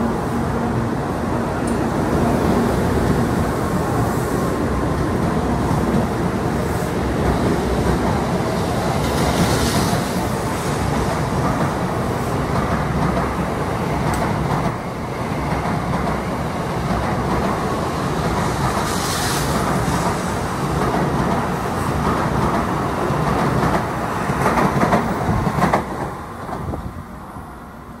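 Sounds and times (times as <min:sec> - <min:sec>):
train wheels rumbling on rail: 0:00.0 - 0:28.0
hiss: 0:18.7 - 0:20.8.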